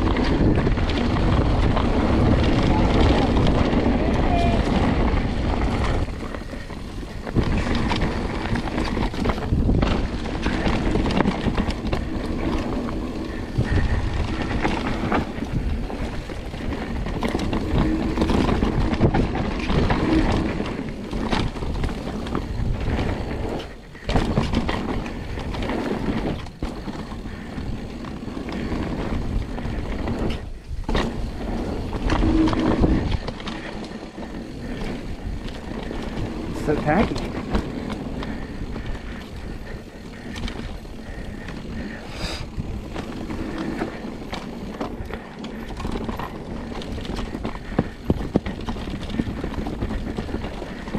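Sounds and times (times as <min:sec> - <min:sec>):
bike rattling over bumps: 0:00.0 - 0:50.9
bike tyres rolling over dirt: 0:00.0 - 0:50.9
wind noise on microphone: 0:00.0 - 0:50.9.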